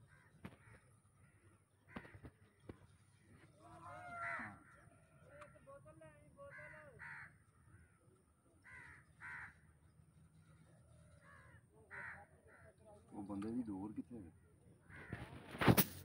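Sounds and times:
crows cawing: 0.0 - 5.7, 6.4 - 12.8, 14.8 - 15.4.

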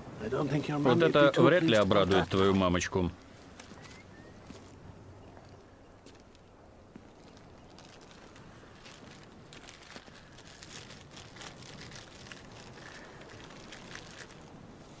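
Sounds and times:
plastic bag crinkling: 7.2 - 14.6.

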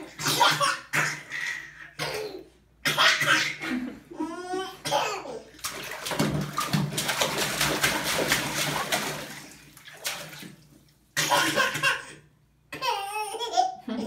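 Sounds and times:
water splashing in a tub: 5.5 - 11.9.

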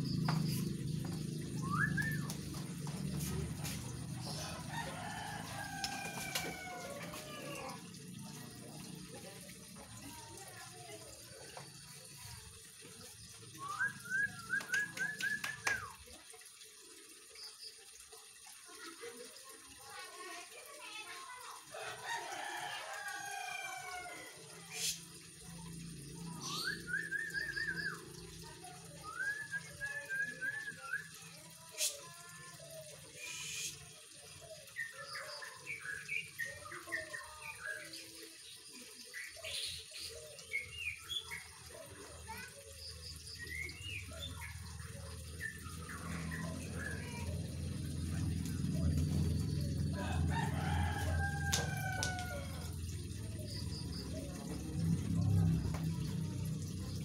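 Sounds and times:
bird singing whistled notes: 1.6 - 2.4
bird song whistles and chirps: 1.6 - 2.4, 13.6 - 15.9, 26.4 - 28.0, 29.0 - 31.2.

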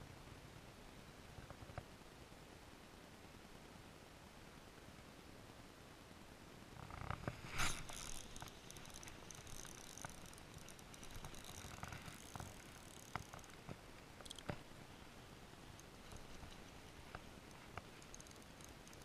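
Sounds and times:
fishing reel whirring and clicking: 7.5 - 14.6, 15.6 - 19.0.

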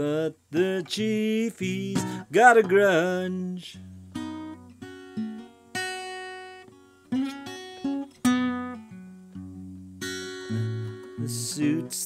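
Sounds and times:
acoustic guitar playing slow blues: 0.0 - 12.0.

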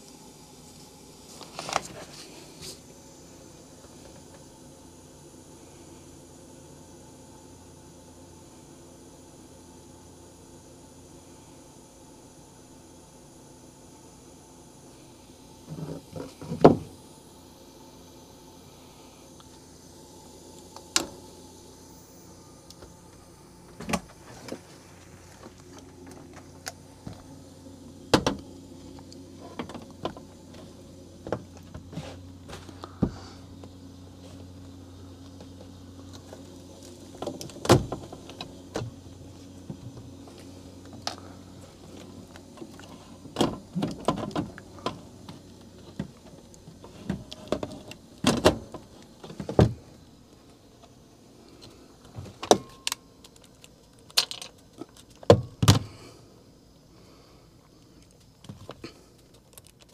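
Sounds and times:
low steady hum: 0.0 - 59.9.

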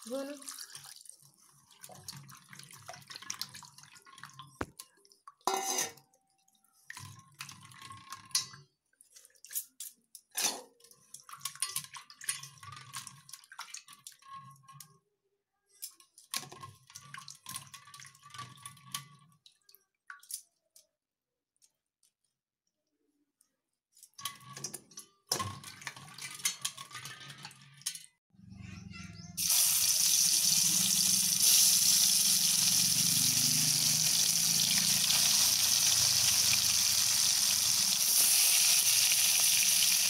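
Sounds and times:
water sloshing and dripping: 0.0 - 15.0, 15.8 - 20.8, 24.0 - 28.2
clinks against steel bowl: 5.5 - 6.0.

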